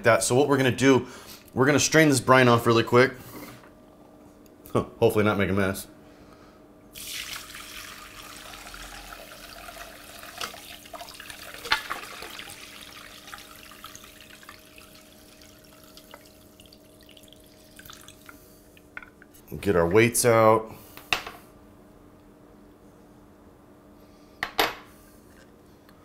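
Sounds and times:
liquid pouring and splashing: 0:06.9 - 0:18.5.

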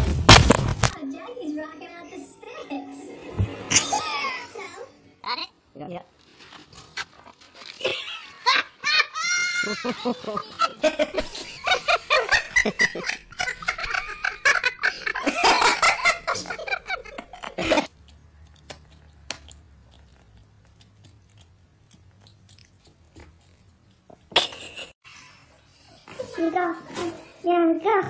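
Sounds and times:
person laughing: 0:07.8 - 0:17.9, 0:24.3 - 0:25.0.

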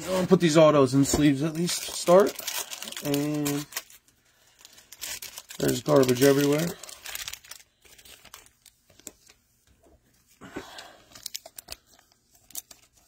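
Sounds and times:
plastic card sleeves crinkling: 0:01.4 - 0:09.5, 0:11.1 - 0:13.0.

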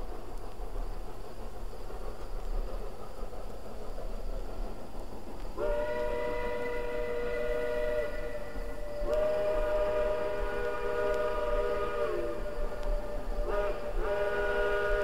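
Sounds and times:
faint hiss: 0:00.0 - 0:15.0
distant steam whistle: 0:05.6 - 0:15.0.

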